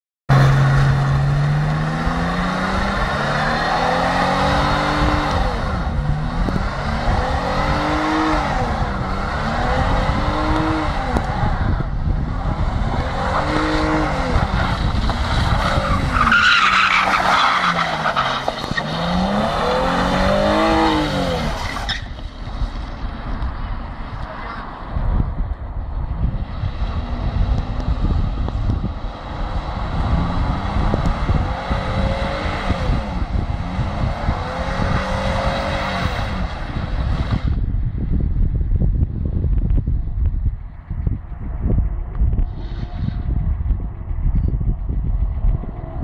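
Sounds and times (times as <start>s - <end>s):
car engine revving: 0.3s - 22.0s, 26.6s - 37.5s
tyres screeching on concrete: 14.6s - 22.2s.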